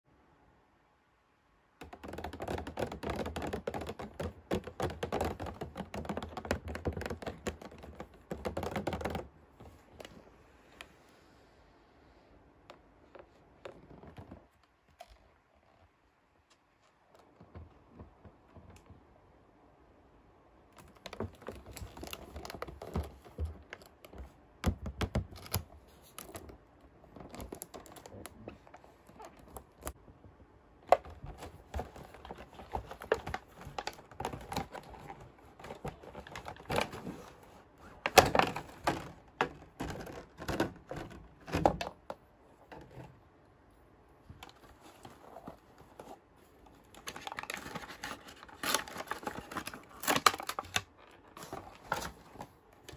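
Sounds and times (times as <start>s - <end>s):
packaging rustling: 20.8s - 24.4s, 30.8s - 41.9s, 44.4s - 52.9s.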